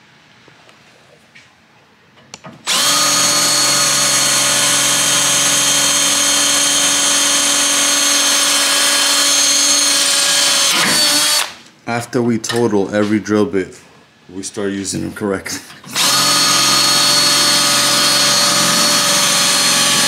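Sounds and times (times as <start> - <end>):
drill boring into metal: 2.7 - 11.6, 15.9 - 20.0.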